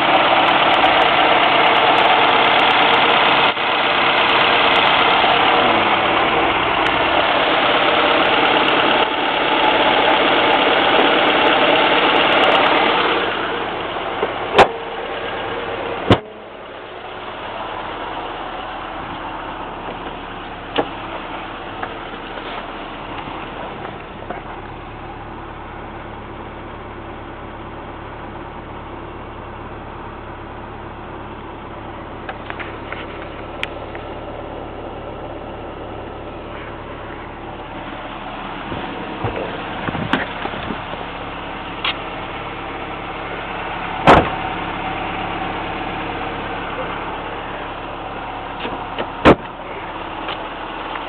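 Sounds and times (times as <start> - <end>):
car engine idling: 0.0 - 51.0.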